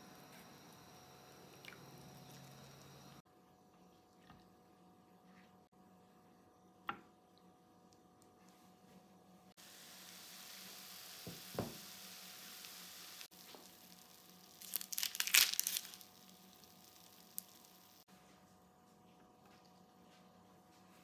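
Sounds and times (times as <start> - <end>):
food sizzling in a frying pan: 9.6 - 18.1
crackling and crinkling: 13.2 - 18.1.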